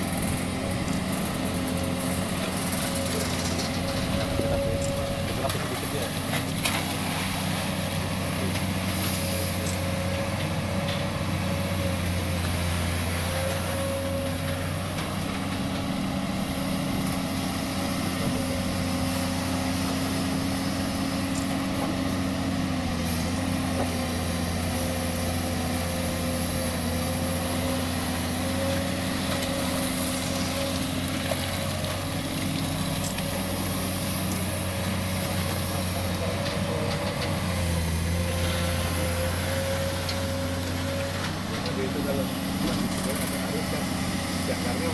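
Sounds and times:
excavator diesel engine: 0.0s - 44.9s.

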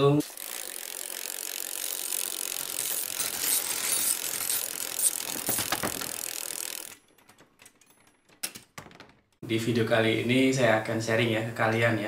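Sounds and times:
bicycle freewheel ratcheting: 0.0s - 7.2s.

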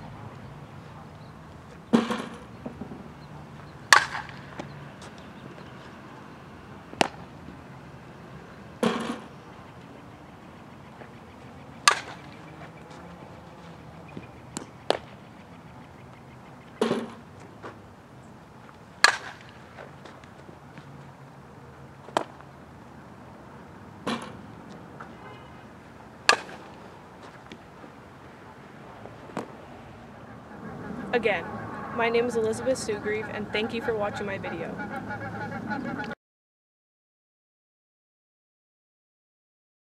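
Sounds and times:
softball knocks: 1.9s - 3.1s, 3.9s - 5.2s, 8.8s - 9.3s, 19.0s - 20.2s, 26.3s - 27.6s
softballs smacking into leather glove: 6.9s - 7.3s, 14.2s - 15.2s, 19.0s - 20.9s, 22.0s - 22.5s, 26.3s - 27.6s.

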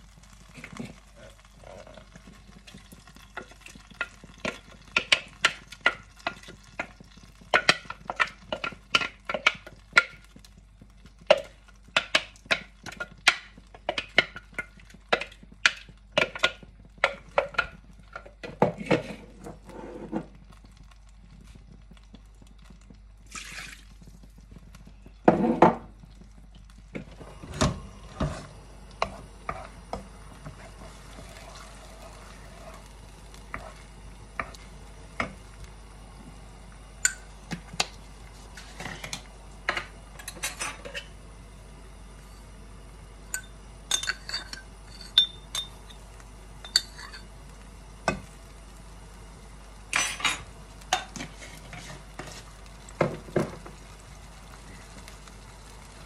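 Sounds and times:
spoon knocking in pan: 3.3s - 20.4s, 26.9s - 31.4s, 32.6s - 35.4s, 52.2s - 53.8s
paste sizzling in oil: 22.9s - 41.2s, 43.3s - 56.0s.

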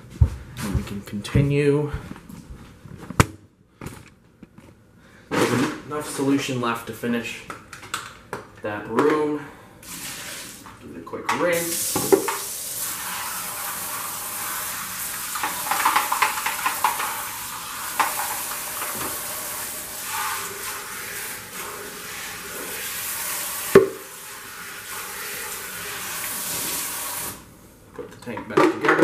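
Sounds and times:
faucet running into sink: 11.6s - 27.4s
plastic parts knocking against sink: 15.4s - 17.2s.

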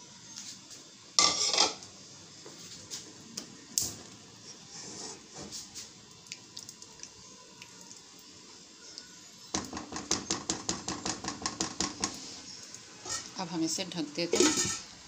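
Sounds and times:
faint sizzle of cooking: 0.0s - 15.0s
spoon scraping against pan: 1.2s - 1.9s, 9.6s - 13.5s, 14.3s - 14.9s
spoon tapping pan: 9.5s - 12.2s.

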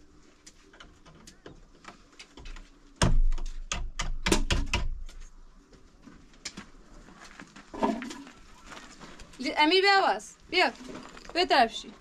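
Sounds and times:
wooden door knocking and rattling: 3.0s - 5.0s.

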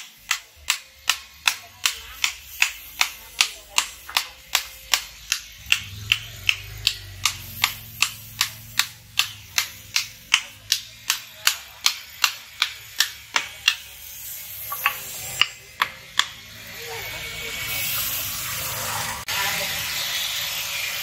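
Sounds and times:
hammer tapping wooden handle: 0.0s - 13.9s, 14.6s - 16.4s.

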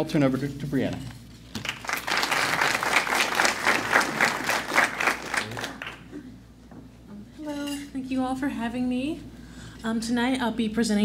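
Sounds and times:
audience applauding: 1.6s - 6.2s.

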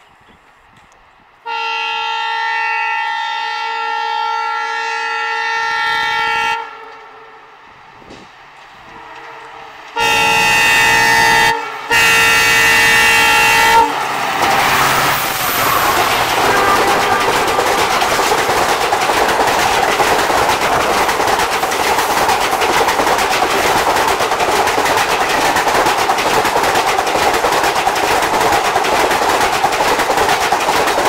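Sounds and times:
train passing at speed: 0.0s - 31.0s
locomotive horn blasts: 1.4s - 7.4s, 8.9s - 14.0s, 15.6s - 18.4s.

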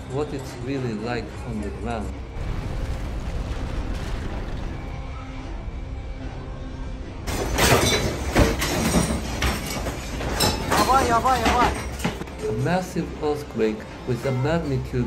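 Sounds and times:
low steady rumbling: 2.1s - 7.3s
furniture and objects rattling: 7.3s - 12.7s.

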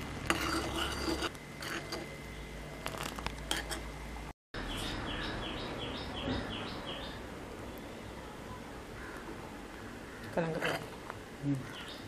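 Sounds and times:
spoon scraping a pan: 0.2s - 2.2s, 2.8s - 3.9s, 10.2s - 11.0s
bird chirping: 4.6s - 8.2s.

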